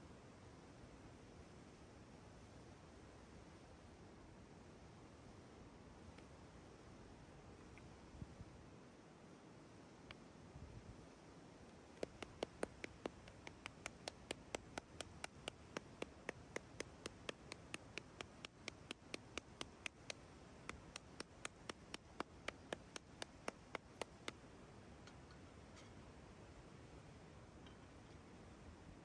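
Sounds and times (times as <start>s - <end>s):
faint steady hiss: 0.0s - 29.0s
sharp ticking: 12.0s - 24.3s.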